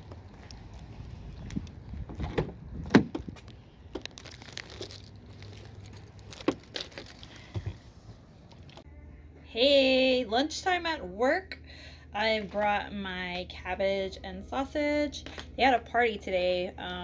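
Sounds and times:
car keys jangling: 4.0s - 7.8s.

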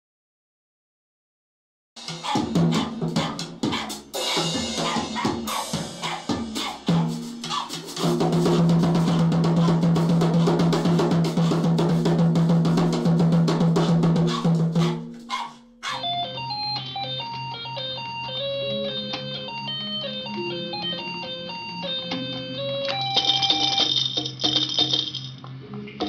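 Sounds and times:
drum kit playing: 2.0s - 16.1s
toy keyboard notes: 15.8s - 25.2s.

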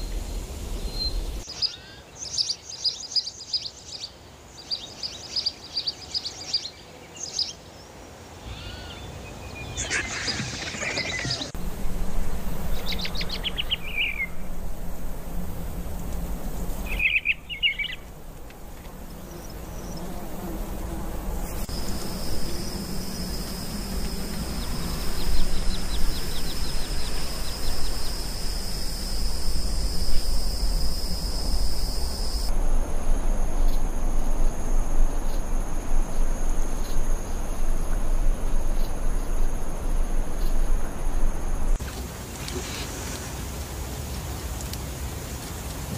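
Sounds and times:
low outdoor hum: 0.0s - 2.2s, 8.4s - 45.9s
high insect trill: 11.4s - 41.8s
falling bird chirps: 16.8s - 18.1s.

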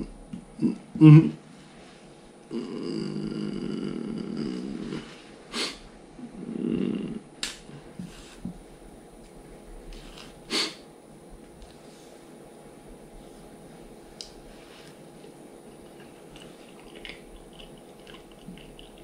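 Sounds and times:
man snoring: 2.5s - 5.1s, 6.4s - 7.2s.

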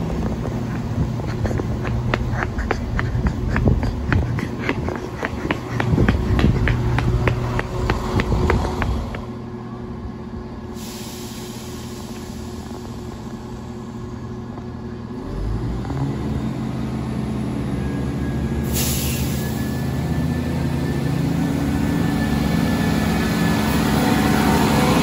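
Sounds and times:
train wheels clicking over rail joints: 0.0s - 9.4s
diesel engines idling: 0.0s - 25.0s.

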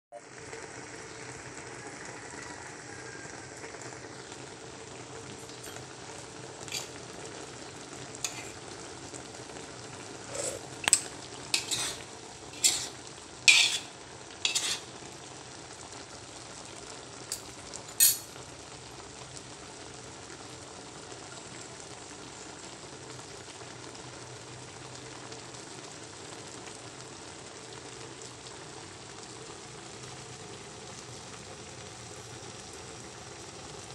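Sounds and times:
fish sizzling in a wok: 0.2s - 33.9s
metal spoon clinking on wok: 5.6s - 5.8s, 6.7s - 6.9s, 8.2s - 8.6s, 10.8s - 12.0s, 12.6s - 13.9s, 14.5s - 14.8s, 17.3s - 18.3s.

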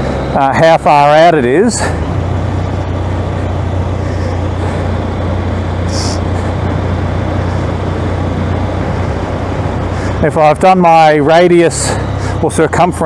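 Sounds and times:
motorcycle engine running: 0.0s - 13.0s
wind and road noise: 0.0s - 13.0s.

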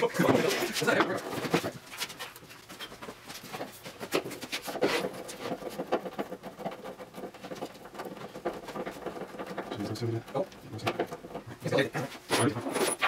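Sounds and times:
panels and screws being handled: 0.2s - 13.0s.

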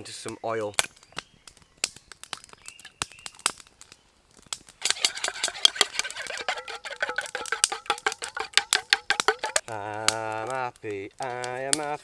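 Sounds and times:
wooden stick beating in metal pot: 4.8s - 10.6s.

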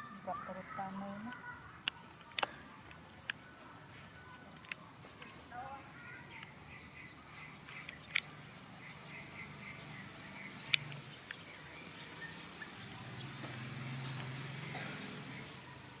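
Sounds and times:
faint bird chirps: 0.0s - 16.0s
sharp clicks: 1.2s - 3.4s, 4.3s - 5.4s, 7.6s - 8.4s, 10.4s - 11.5s.

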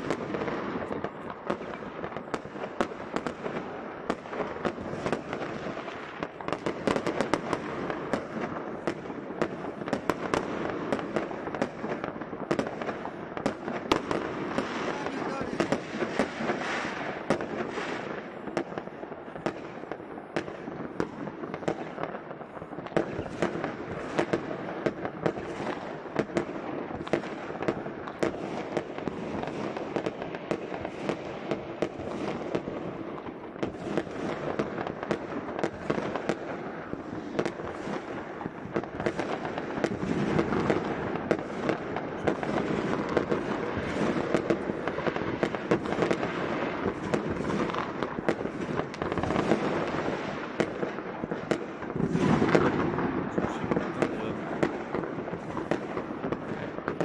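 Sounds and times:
fireworks crackling and banging: 0.0s - 57.0s.

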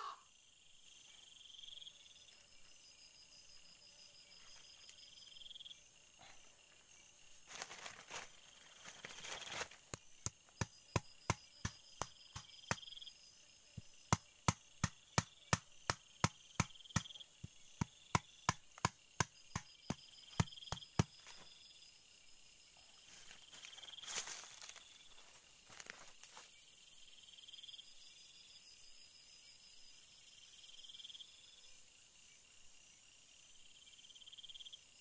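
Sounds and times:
insects trilling: 0.0s - 35.0s
rustling in dry leaves: 7.4s - 9.9s, 23.1s - 26.4s
machete chopping bamboo: 9.9s - 12.9s, 13.8s - 21.3s.

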